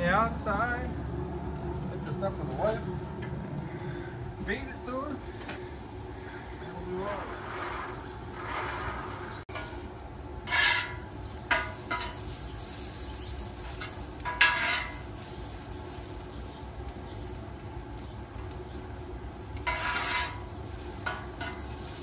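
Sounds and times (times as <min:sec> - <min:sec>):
vegetables sizzling on griddle: 0:03.7 - 0:22.0
metal spatula scraping griddle: 0:06.2 - 0:13.0, 0:13.6 - 0:16.1, 0:19.6 - 0:22.0.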